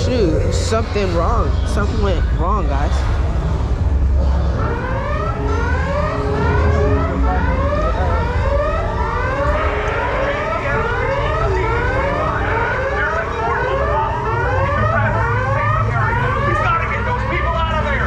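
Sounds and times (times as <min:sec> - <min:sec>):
steady low rumble: 0:00.0 - 0:18.0
whooping alarm siren: 0:03.8 - 0:18.0.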